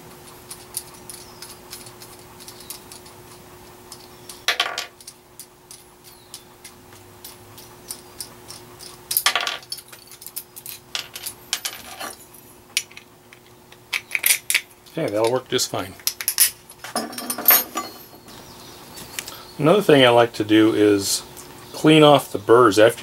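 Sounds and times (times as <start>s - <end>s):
faint steady hum: 0.0s - 23.0s
metal parts clinking on vise: 7.2s - 13.1s, 13.9s - 15.4s, 16.0s - 18.3s.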